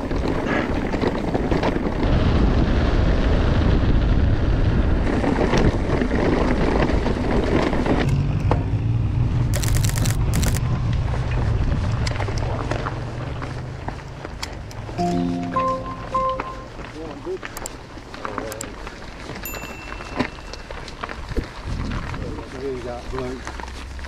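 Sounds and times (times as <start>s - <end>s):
wind rushing on microphone: 0.0s - 8.1s, 10.2s - 12.7s.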